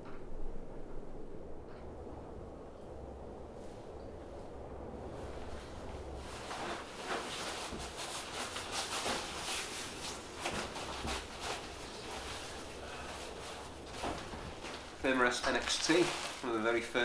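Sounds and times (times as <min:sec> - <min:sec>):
crinkly rustling of camping gear: 0:03.5 - 0:17.0.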